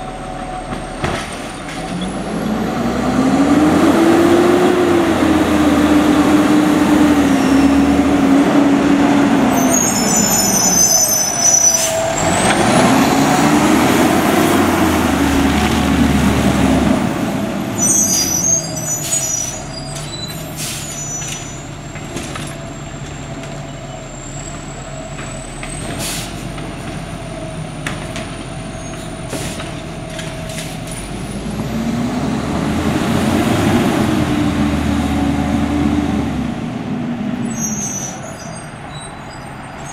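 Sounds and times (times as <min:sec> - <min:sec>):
garbage truck engine revving: 0:00.0 - 0:21.3, 0:30.5 - 0:37.8
brake squeals: 0:04.7 - 0:32.2, 0:37.4 - 0:39.9
air brake hissing: 0:09.6 - 0:12.3, 0:20.4 - 0:21.4, 0:26.0 - 0:26.5.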